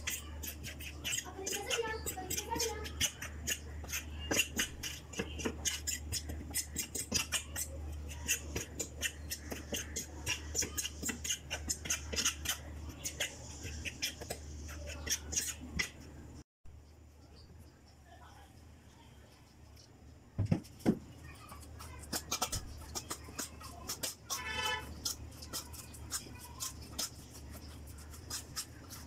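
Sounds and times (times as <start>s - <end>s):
spoon scraping a plate: 21.8s - 29.0s.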